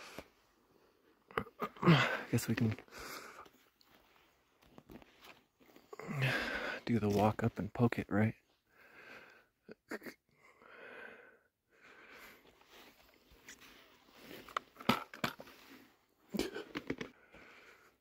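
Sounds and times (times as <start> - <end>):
person breathing heavily: 0.0 - 4.2, 5.6 - 6.9, 8.6 - 9.6, 10.3 - 14.6, 16.6 - 18.0
footsteps in brush: 3.4 - 5.9.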